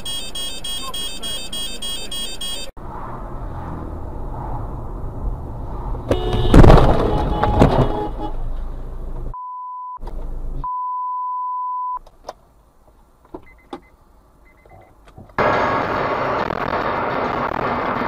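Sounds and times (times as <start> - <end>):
high bleep tone: 0.0 - 2.7, 9.4 - 10.0, 10.6 - 12.0
car crash: 5.9 - 8.6, 15.4 - 18.0.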